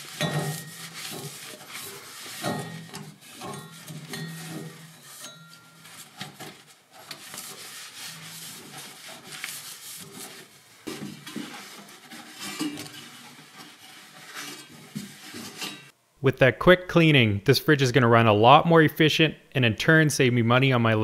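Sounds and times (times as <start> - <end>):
cloth rubbing on metal: 0.0 - 16.0.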